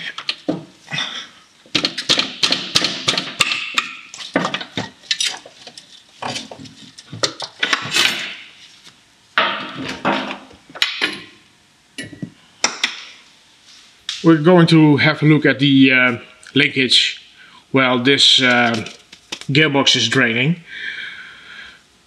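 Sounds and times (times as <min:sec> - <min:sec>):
scraping rattles: 0:01.7 - 0:08.5, 0:18.4 - 0:19.5.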